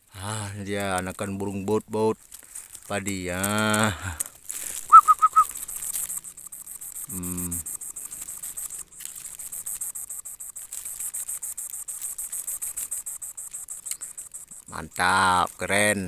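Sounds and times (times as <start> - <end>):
insect trilling: 0.0 - 16.0
short chirps: 4.6 - 9.3.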